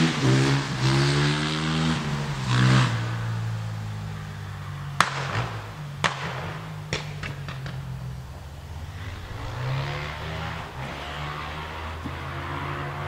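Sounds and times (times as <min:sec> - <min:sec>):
steam train rumbling: 0:05.6 - 0:13.0
rushing sound: 0:08.4 - 0:13.0.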